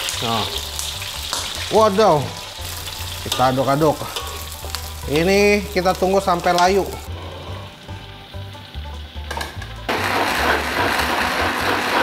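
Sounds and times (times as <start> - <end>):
food sizzling in oil: 0.0 - 12.0
stick blender running: 9.9 - 12.0.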